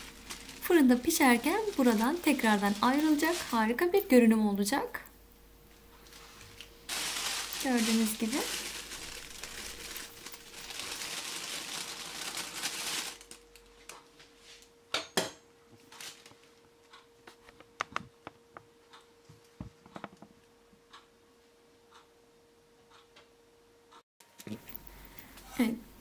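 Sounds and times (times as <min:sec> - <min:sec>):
plastic bag crinkling: 0:00.0 - 0:04.7, 0:05.9 - 0:13.9.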